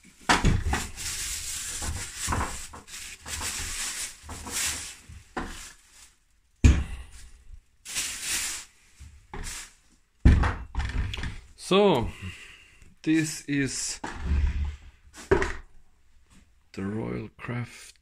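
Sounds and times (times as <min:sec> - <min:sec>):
plastic wrapping crinkling: 0:00.0 - 0:06.4, 0:07.1 - 0:09.9.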